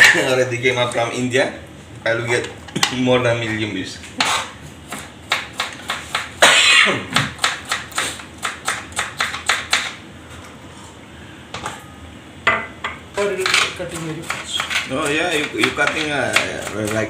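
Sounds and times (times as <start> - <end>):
knife chopping on plastic board: 4.9 - 6.4, 7.1 - 10.0, 13.4 - 17.0.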